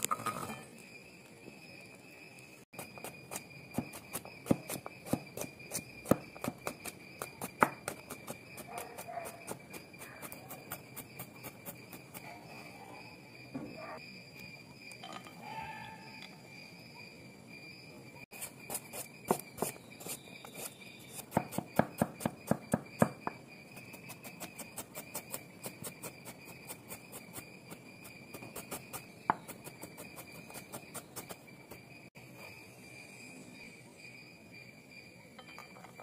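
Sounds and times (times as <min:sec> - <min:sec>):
knife chopping on wooden board: 0:20.6 - 0:23.4.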